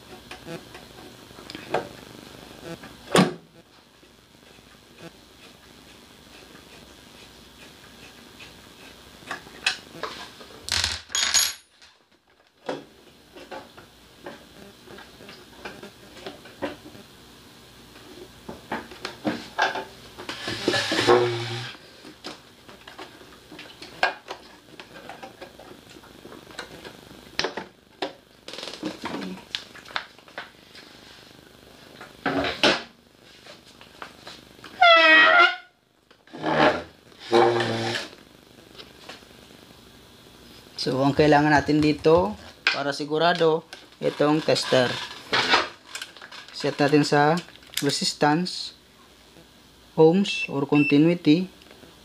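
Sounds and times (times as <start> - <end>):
metal parts knocking and clinking: 10.7 - 11.7.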